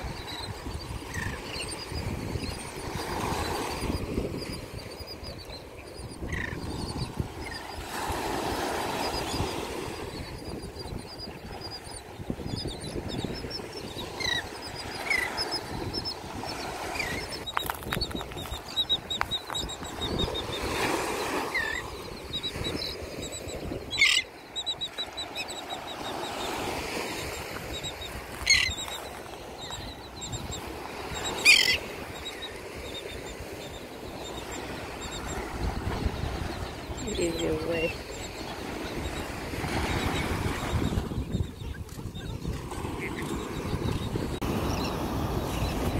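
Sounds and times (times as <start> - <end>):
terns and gulls calling: 0.0 - 45.9
small waves breaking: 7.4 - 10.1, 25.2 - 29.7.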